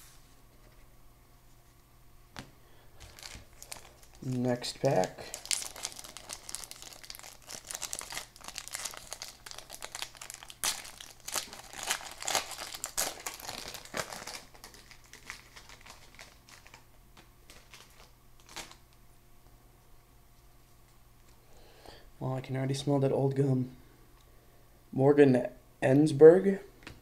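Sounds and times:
foil wrapper tearing and crinkling: 3.0s - 16.9s, 17.5s - 18.9s.

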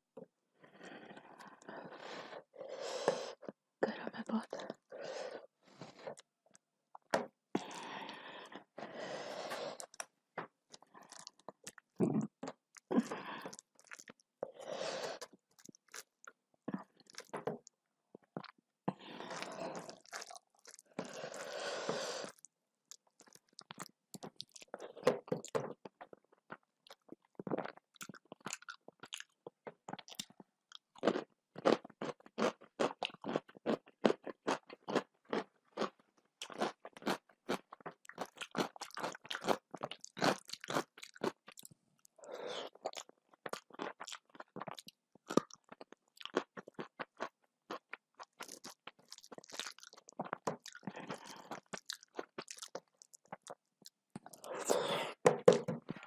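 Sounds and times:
chewing with wet mouth sounds: 12.7s - 14.3s, 19.4s - 21.4s, 22.3s - 41.8s, 42.7s - 54.7s.

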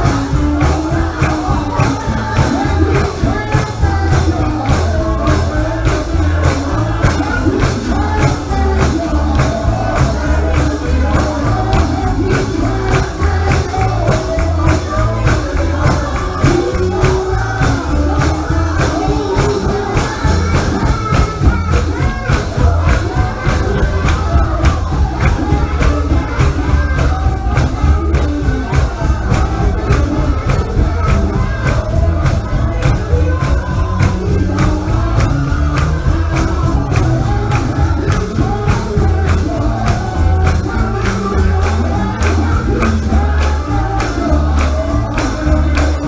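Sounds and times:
gospel singing over a band: 0.0s - 46.0s
heavy bass line: 0.0s - 46.0s
tambourine beat: 0.0s - 46.0s.

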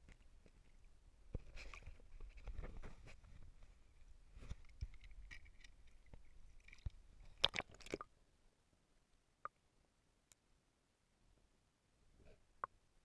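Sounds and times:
faint underwater clicks: 4.4s - 8.1s
water splashing: 6.6s - 8.1s.

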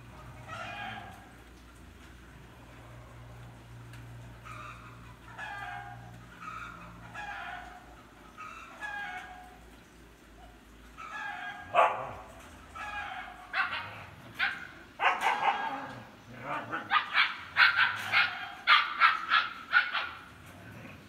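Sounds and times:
huskies barking and yipping: 0.2s - 20.8s.

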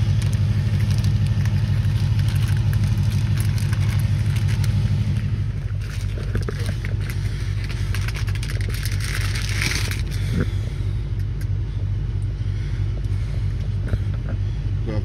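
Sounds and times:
plastic packaging crinkling: 0.0s - 10.4s
steady low rumble: 0.0s - 15.0s.

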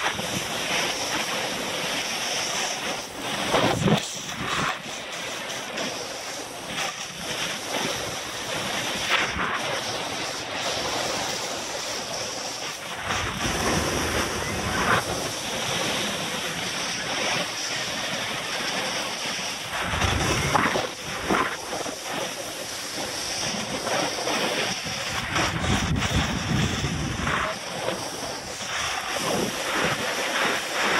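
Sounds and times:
snowboard scraping over snow: 0.0s - 30.9s
wind buffeting microphone: 7.2s - 30.9s.

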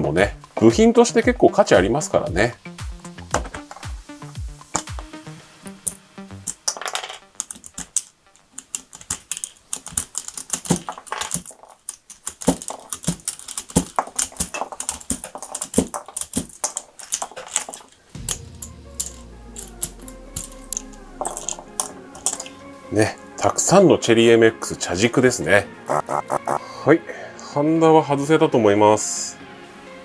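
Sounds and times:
keycaps snapping off keyboard: 6.6s - 17.9s
keycaps clattering onto rubber mat: 8.6s - 17.9s.

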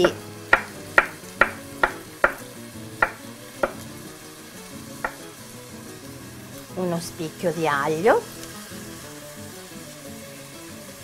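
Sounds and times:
knife chopping on wooden board: 0.0s - 3.9s
soft sizzle of frying oil: 0.0s - 11.0s.

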